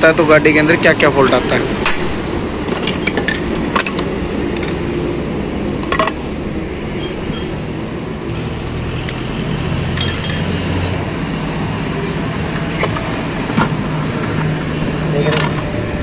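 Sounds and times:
low traffic rumble: 0.0 - 16.0
metal parts clinking: 7.0 - 7.6, 10.0 - 10.6.

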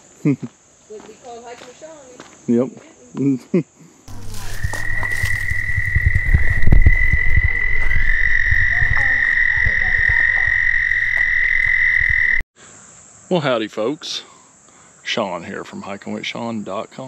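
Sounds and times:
cicada buzzing: 4.1 - 12.4
thumps on microphone: 4.6 - 10.5.

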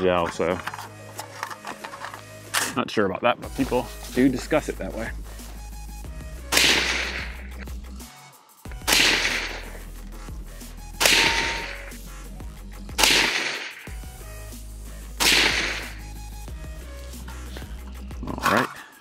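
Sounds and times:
suppressed gunshots: 6.5 - 7.4, 8.8 - 9.8, 11.0 - 11.9, 13.0 - 13.9, 15.2 - 16.0.

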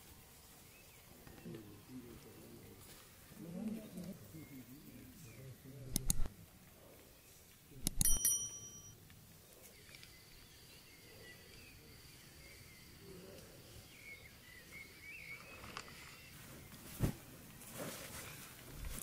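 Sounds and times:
click: 5.9 - 6.3, 7.8 - 8.2
bell ding: 8.0 - 9.0
thin steady high tone: 8.0 - 9.0.

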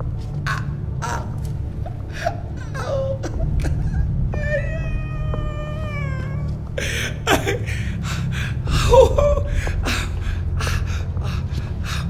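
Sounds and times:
steady low hum: 0.0 - 12.0
man sobbing and gasping: 1.1 - 4.9, 6.8 - 12.0
man wailing in pain: 8.7 - 10.2.

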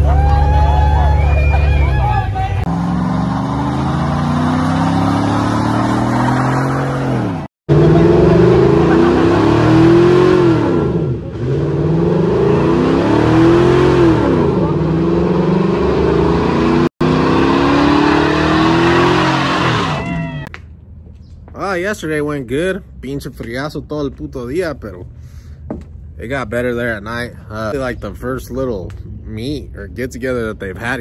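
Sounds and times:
truck engine revving: 0.0 - 20.5.

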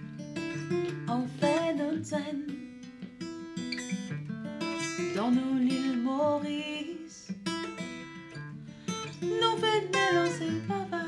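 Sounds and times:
acoustic guitar strummed and picked: 0.0 - 11.0
woman singing: 1.0 - 2.8, 4.8 - 7.6, 9.1 - 11.0.

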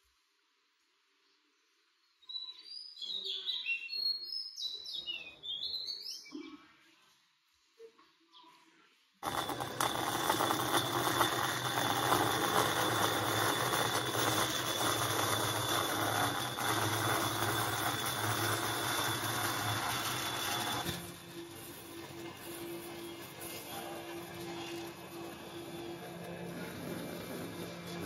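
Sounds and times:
bandsaw cutting wood: 9.2 - 28.0.

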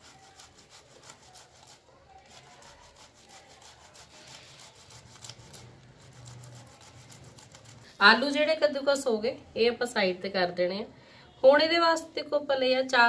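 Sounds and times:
potato rasping on grater: 0.0 - 8.3.

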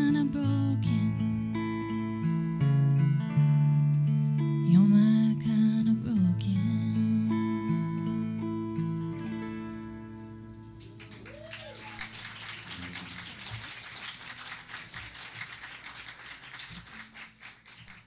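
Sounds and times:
guitar chord ringing: 0.0 - 11.3
audience applauding: 10.8 - 18.0.

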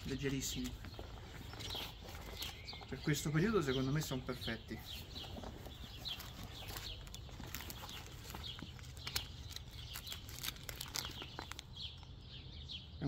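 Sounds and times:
small birds chirping: 0.0 - 13.0
plastic bag crinkling: 5.2 - 12.1.

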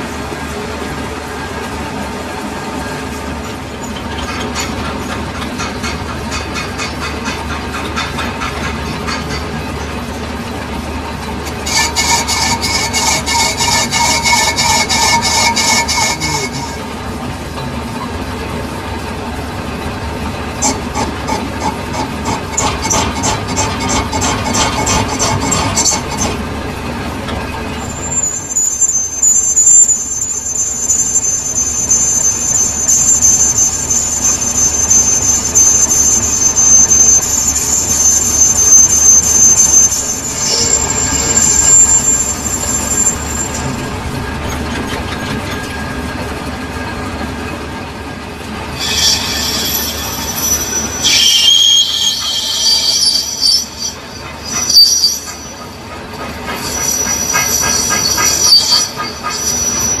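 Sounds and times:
lathe tool scraping metal: 11.4 - 17.1, 20.2 - 46.8, 48.7 - 60.0.

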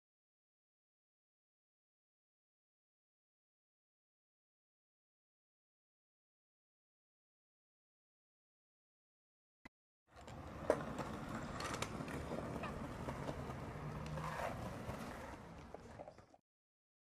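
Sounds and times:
small wheels rolling on asphalt: 10.1 - 16.4.

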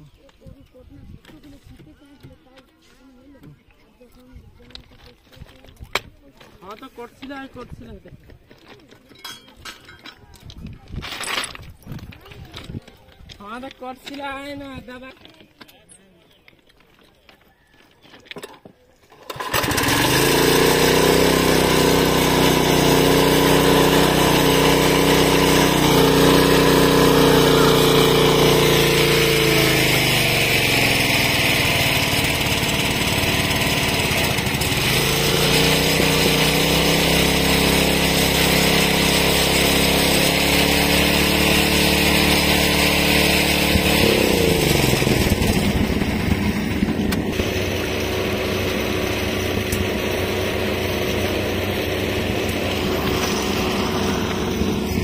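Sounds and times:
small petrol engine running: 19.1 - 55.0.

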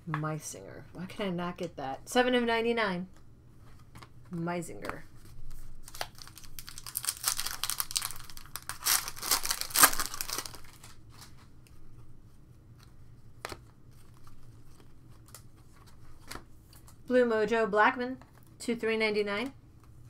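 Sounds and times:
foil wrapper tearing and crinkling: 5.8 - 11.0.

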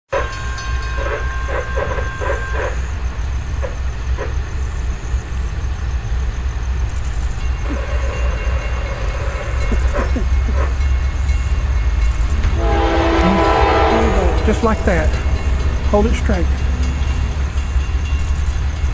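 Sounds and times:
crossing bell dinging: 0.1 - 3.1, 7.4 - 18.9
freight train rumble: 0.1 - 18.9
steady pitched tone: 7.5 - 18.9.

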